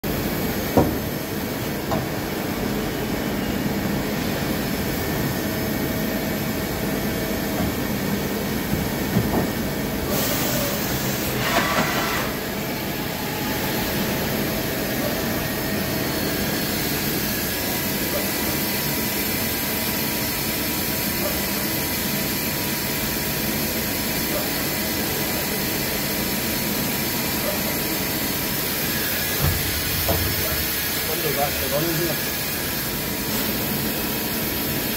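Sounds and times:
hiss: 0:10.0 - 0:14.2, 0:23.3 - 0:34.9.

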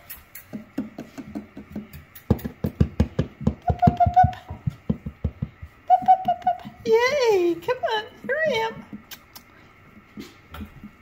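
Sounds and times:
rapid taps on wooden boards: 0:00.7 - 0:05.7.

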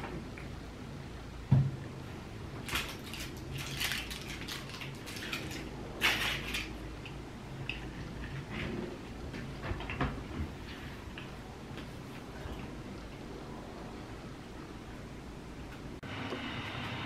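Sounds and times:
plastic wrapper crinkling: 0:02.6 - 0:06.8.

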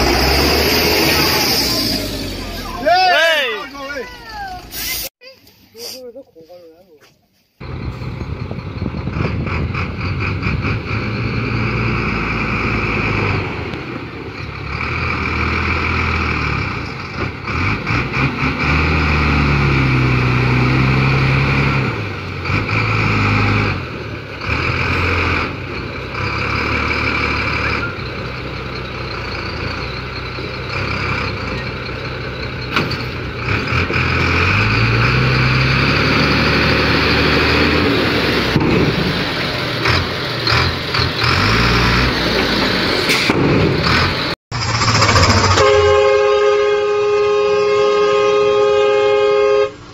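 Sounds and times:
diesel truck engine revving: 0:00.0 - 0:03.1, 0:07.6 - 0:49.9.

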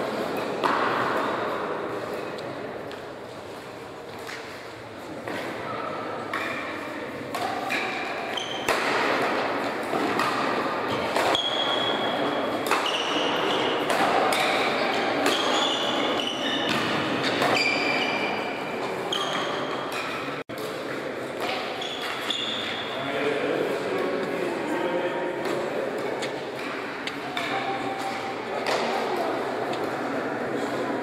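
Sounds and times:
racket striking shuttlecock: 0:07.3 - 0:12.0, 0:12.6 - 0:17.9.

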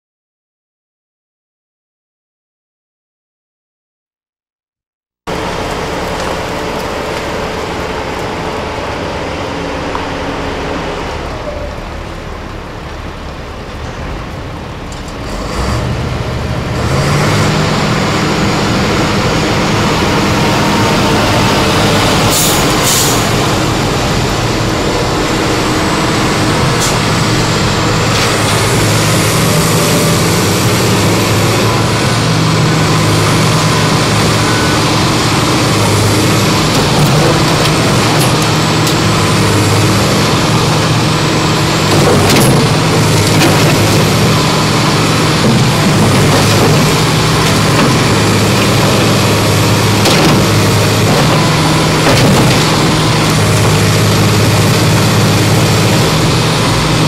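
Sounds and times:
excavator diesel engine running: 0:05.3 - 0:57.0.

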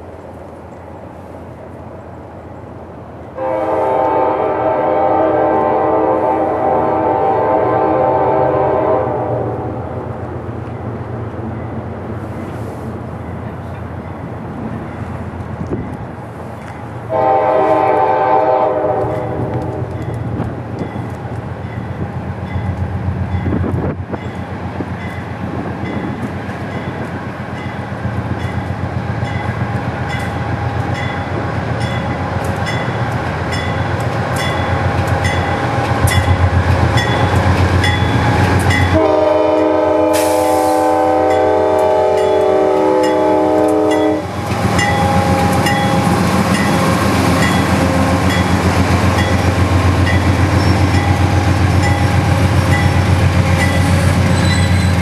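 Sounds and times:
diesel locomotive rumble: 0:00.0 - 0:55.0
locomotive air horn: 0:03.4 - 0:09.8, 0:17.1 - 0:19.9, 0:38.9 - 0:44.4
crossing bell dinging: 0:19.9 - 0:39.7, 0:41.2 - 0:55.0.

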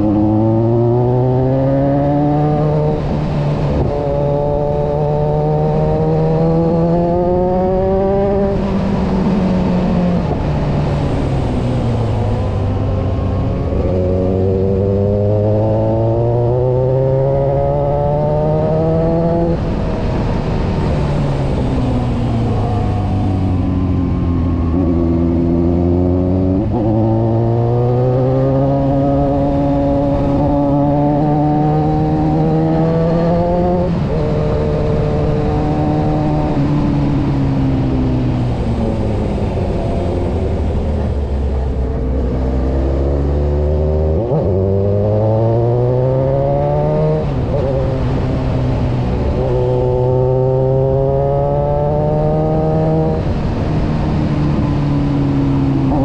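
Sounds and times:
motorcycle engine: 0:00.0 - 0:56.0
wind rush: 0:17.0 - 0:42.9.

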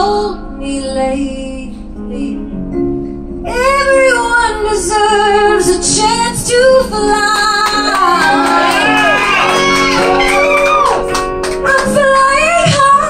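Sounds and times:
woman singing a pop ballad: 0:00.0 - 0:02.6, 0:03.5 - 0:08.6, 0:11.6 - 0:13.0
piano accompaniment: 0:00.0 - 0:13.0.

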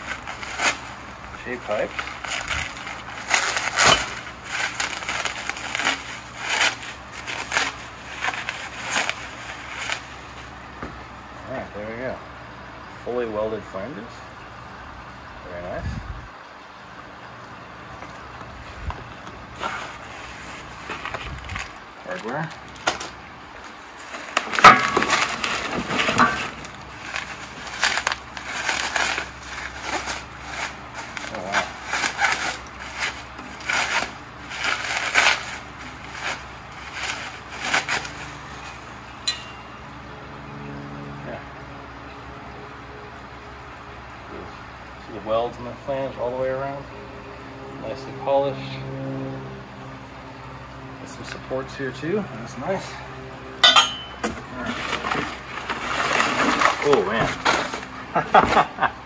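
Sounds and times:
bubble wrap crinkling: 0:00.0 - 0:10.6, 0:19.5 - 0:39.2, 0:54.3 - 0:58.9.

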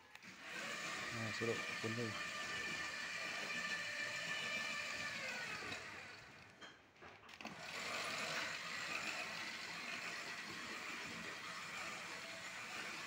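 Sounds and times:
electric motor whining: 0:00.1 - 0:06.4, 0:07.4 - 0:13.0.

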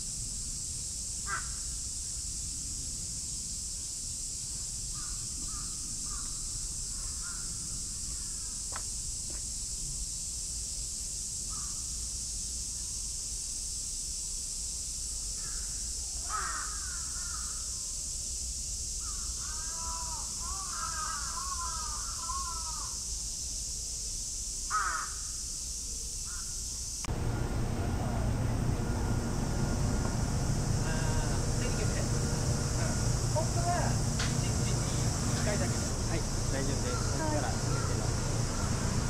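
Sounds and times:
steady high hiss: 0:00.0 - 0:39.0
bird cawing: 0:01.3 - 0:01.6, 0:04.9 - 0:08.6, 0:15.4 - 0:17.7, 0:19.0 - 0:23.0, 0:24.7 - 0:25.2, 0:27.2 - 0:39.0.

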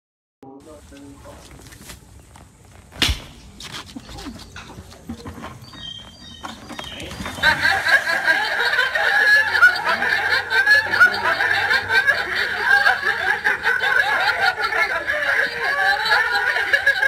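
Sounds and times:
people laughing and snickering: 0:03.6 - 0:17.0.

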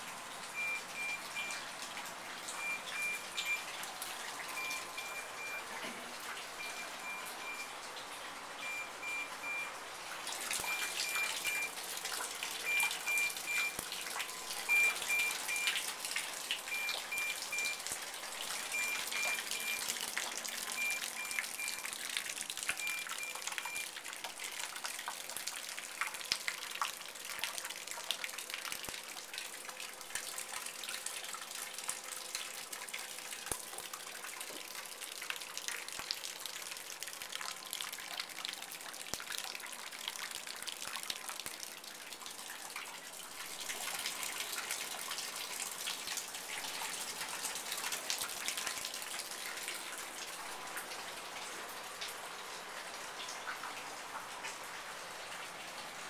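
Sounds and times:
water dripping into metal pot: 0:00.4 - 0:05.6, 0:10.3 - 0:50.0
electronic beep: 0:00.6 - 0:01.6, 0:02.6 - 0:03.7, 0:04.6 - 0:05.7, 0:06.6 - 0:07.7, 0:08.6 - 0:09.7, 0:10.6 - 0:11.8, 0:12.7 - 0:15.8, 0:16.7 - 0:17.8, 0:18.6 - 0:19.9, 0:20.8 - 0:21.9, 0:22.8 - 0:23.9.

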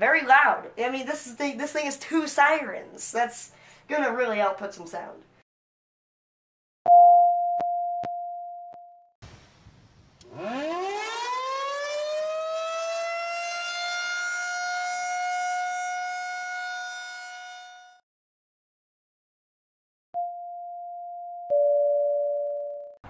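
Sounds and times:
sine test tone: 0:06.9 - 0:09.1, 0:20.2 - 0:23.0
warning siren wailing: 0:10.2 - 0:18.0.

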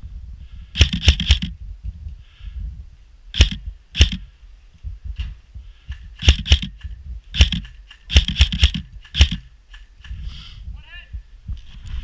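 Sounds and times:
low rumble: 0:00.0 - 0:09.6
airsoft gun shots: 0:00.8 - 0:01.5, 0:03.4 - 0:04.2, 0:06.2 - 0:09.5.

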